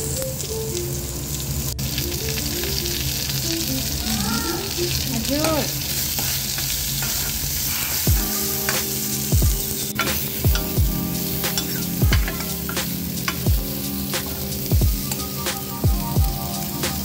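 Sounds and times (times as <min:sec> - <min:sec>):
vegetables sizzling in oil: 0:00.0 - 0:17.0
background music with booming beat: 0:08.1 - 0:17.0.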